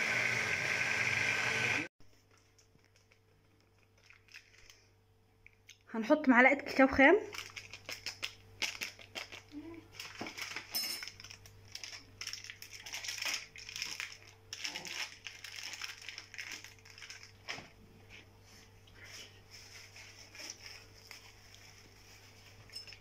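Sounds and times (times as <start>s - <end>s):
foil packet rustling: 2.1s - 4.9s, 7.3s - 17.8s, 19.5s - 22.7s.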